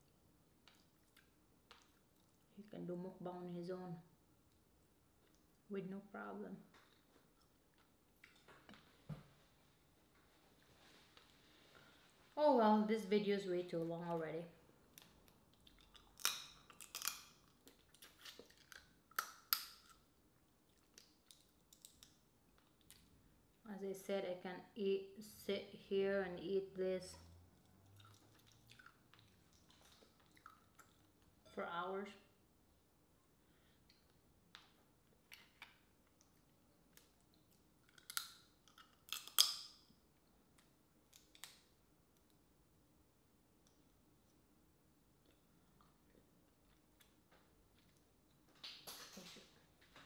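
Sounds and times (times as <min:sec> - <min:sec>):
shells cracking: 0:16.0 - 0:17.5, 0:37.9 - 0:39.8
wet mouth sounds: 0:27.7 - 0:31.3.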